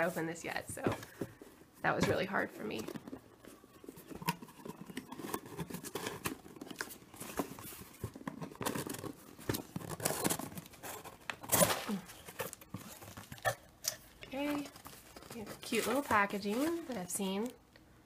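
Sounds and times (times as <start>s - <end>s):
paper filler rustling: 0.0s - 17.6s
cardboard box tearing: 4.1s - 13.5s.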